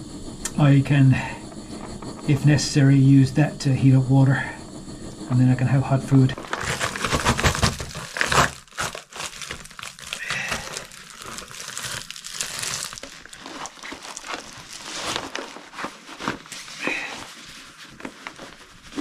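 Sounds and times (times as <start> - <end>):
foil pouch crinkling: 6.4 - 19.0.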